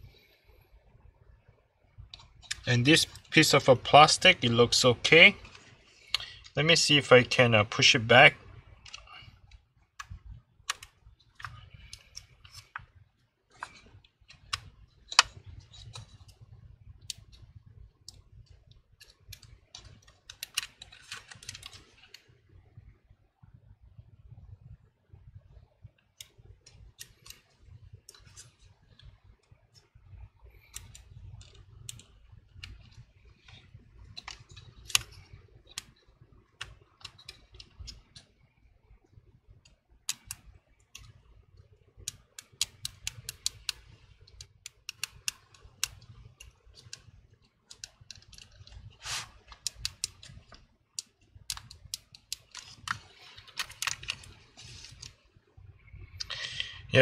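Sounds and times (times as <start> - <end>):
fingers clicking plastic parts: 8.8 - 17.5, 18.1 - 22.3, 26.2 - 29.9, 30.5 - 38.4, 39.6 - 41.2, 42.0 - 55.2.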